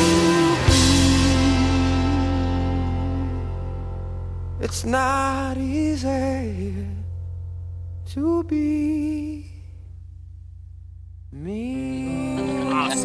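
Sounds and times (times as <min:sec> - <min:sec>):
sung melody with accompaniment: 0:00.0 - 0:08.6.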